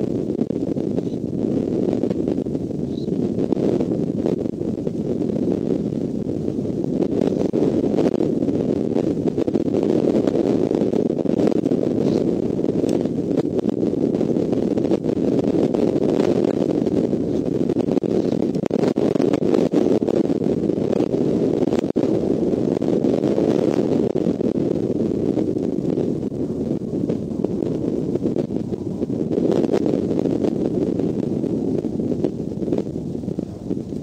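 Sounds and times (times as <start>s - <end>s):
wind rumbling on microphone: 0.0s - 34.0s.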